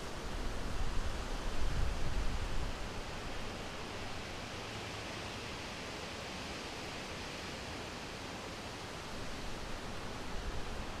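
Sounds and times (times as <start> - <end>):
wind rumbling on microphone: 0.2 - 3.4.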